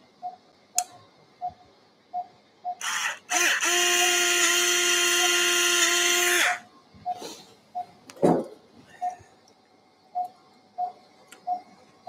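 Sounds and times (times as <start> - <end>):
power drill whining: 2.8 - 6.6.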